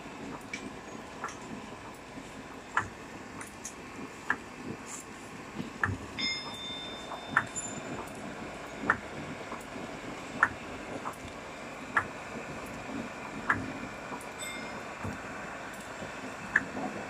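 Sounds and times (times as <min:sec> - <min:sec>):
high steady tone: 0:06.2 - 0:09.0, 0:14.4 - 0:15.5.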